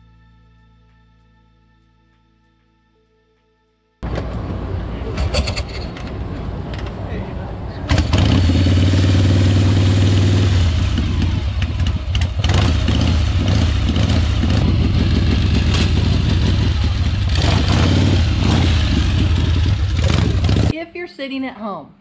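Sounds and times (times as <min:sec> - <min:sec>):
motorcycle engine revving: 0:07.8 - 0:20.8.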